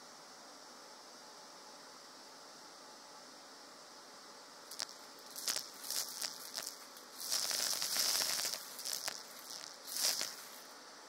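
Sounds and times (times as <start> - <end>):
faint steady hiss: 0.0 - 11.0
coffee beans clattering in vacuum tube: 4.7 - 10.7.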